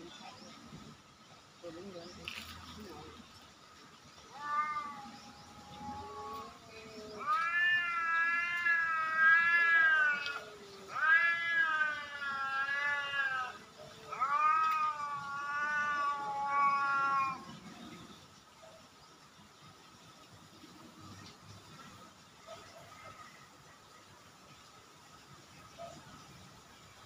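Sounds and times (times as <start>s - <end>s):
cat yowling: 4.3s - 17.6s.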